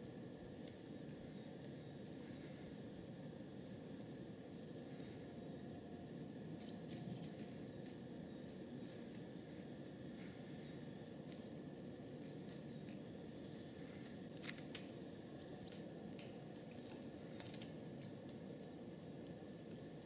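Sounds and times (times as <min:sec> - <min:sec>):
songbird calling: 0:00.0 - 0:04.6, 0:06.2 - 0:09.2, 0:14.3 - 0:16.6.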